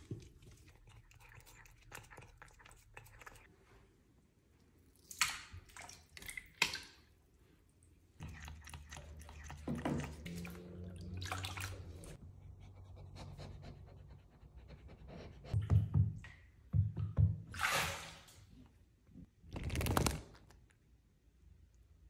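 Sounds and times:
cat licking: 0.1 - 3.5
bath water splashing: 4.8 - 7.3, 8.2 - 12.2, 15.7 - 18.5.

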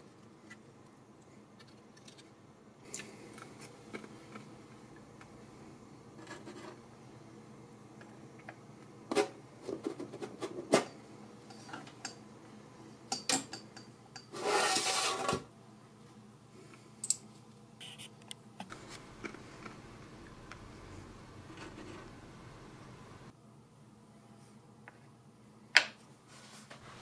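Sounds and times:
rubbing scrape on metal: 14.3 - 15.4.

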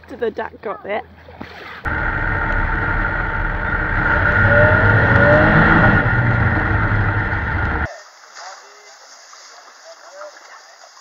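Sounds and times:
vehicle engine running loudly: 1.9 - 7.9.

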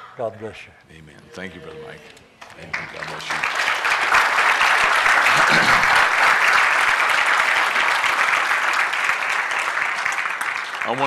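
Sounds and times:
crowd applauding: 1.6 - 11.0.

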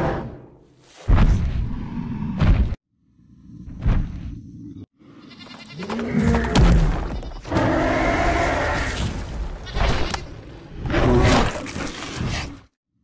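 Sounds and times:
dinosaur roaring: 7.5 - 9.1.

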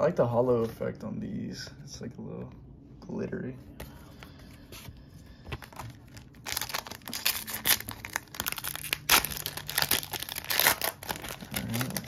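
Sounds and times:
foil wrapper crinkling and tearing: 5.6 - 12.0.

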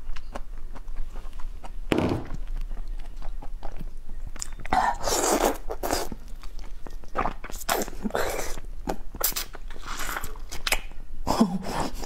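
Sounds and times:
mouth sucking and slurping: 4.7 - 6.2, 7.2 - 10.4.

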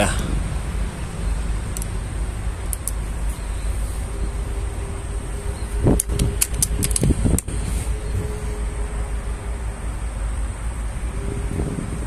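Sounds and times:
low background rumble: 0.0 - 12.0
sharp clicks and knocks: 1.7 - 2.0, 2.6 - 3.0, 5.9 - 7.5.

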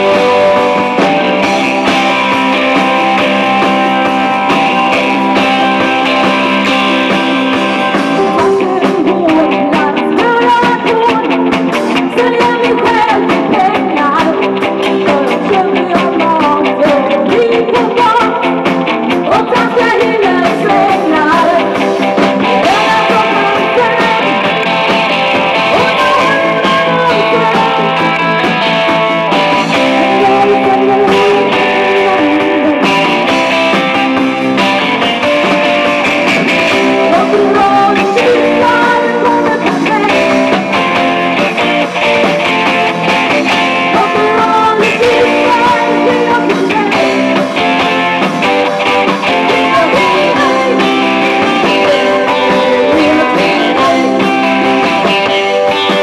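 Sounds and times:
electric guitar: 0.0 - 56.0
keyboard: 0.0 - 56.0
person singing: 0.0 - 56.0.

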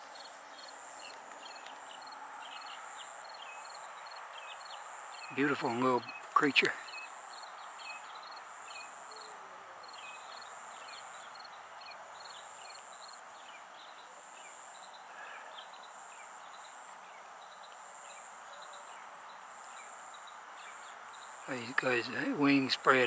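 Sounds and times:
rapid insect ticks: 0.0 - 5.4
soft background hiss: 0.0 - 23.0.

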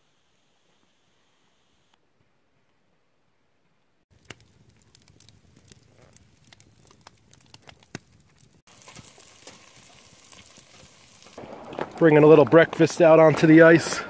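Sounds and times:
food frying in pot: 4.1 - 11.8
campfire crackling and popping: 4.1 - 14.0.

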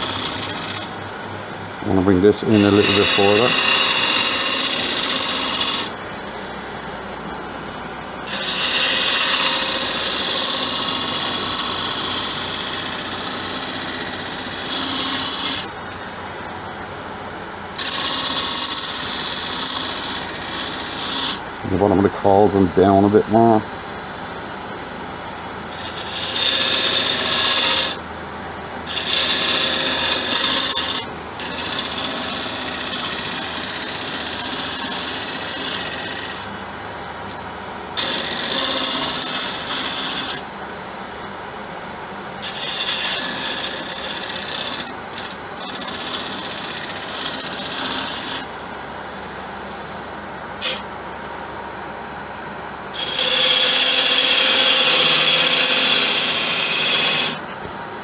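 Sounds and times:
gouge scraping spinning wood: 0.0 - 1.0, 1.9 - 6.9, 8.2 - 16.2, 17.8 - 23.0, 25.7 - 28.0, 28.8 - 36.6, 38.0 - 40.4, 42.4 - 48.5, 50.6 - 50.8, 53.0 - 57.6
lathe running hum: 0.0 - 58.0.

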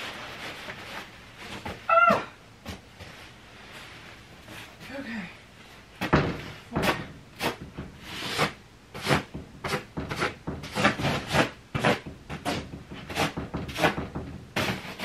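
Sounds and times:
fabric rustling and swishing: 0.0 - 1.9, 2.8 - 4.8.

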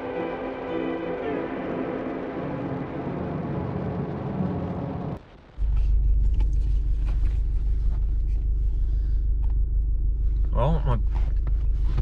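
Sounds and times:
road and wind noise: 0.0 - 12.0
car rumble inside cabin: 2.7 - 12.0.

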